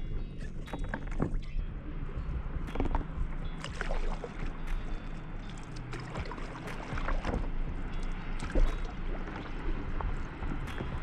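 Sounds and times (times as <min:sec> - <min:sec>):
paddle strokes splashing: 0:03.6 - 0:11.0
water lapping against board: 0:03.6 - 0:11.0.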